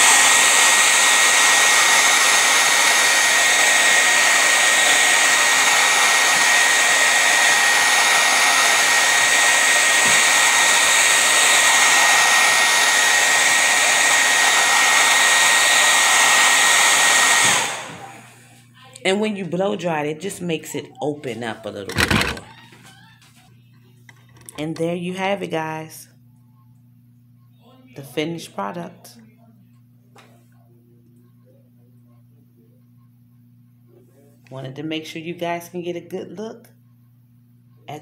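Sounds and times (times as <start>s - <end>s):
hair dryer running: 0.0s - 22.6s.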